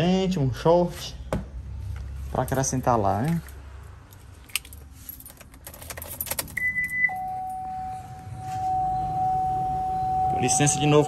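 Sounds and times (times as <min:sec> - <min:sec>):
keys jangling: 0:04.1 - 0:07.0
continuous low warning beep: 0:06.5 - 0:11.0.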